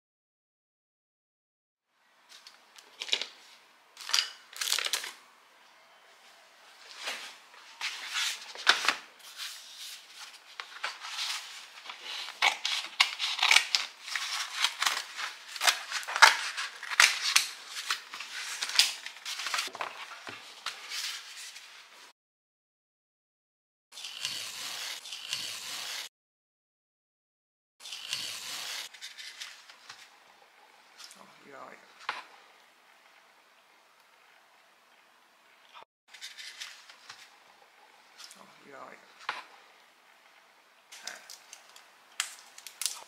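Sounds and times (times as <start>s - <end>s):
cardboard and paper crackling and tearing: 7.0s - 21.6s.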